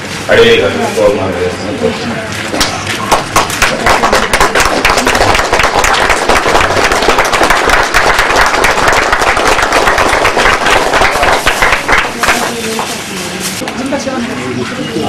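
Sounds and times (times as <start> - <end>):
audience applauding: 3.0 - 12.6.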